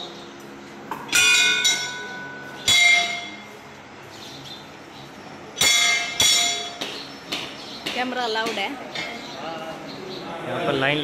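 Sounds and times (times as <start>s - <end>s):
brass bells clanging: 1.1s - 3.5s, 5.6s - 6.8s.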